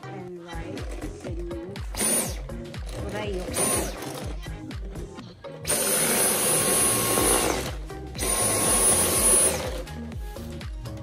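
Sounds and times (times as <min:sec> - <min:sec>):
vacuum cleaner motor whine: 0:05.7 - 0:09.9.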